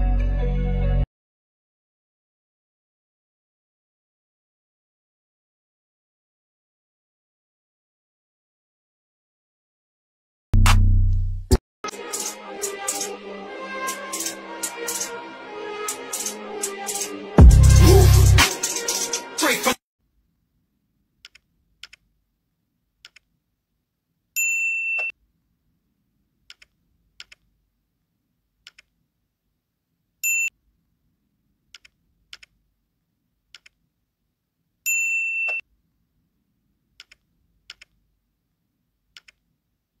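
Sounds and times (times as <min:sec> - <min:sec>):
mouse clicks: 0:21.2 - 0:22.0, 0:23.0 - 0:23.3, 0:26.5 - 0:27.5, 0:28.6 - 0:28.9, 0:31.7 - 0:32.6, 0:33.5 - 0:33.8, 0:37.0 - 0:38.0, 0:39.1 - 0:39.4
notification bell ding: 0:34.9 - 0:35.6.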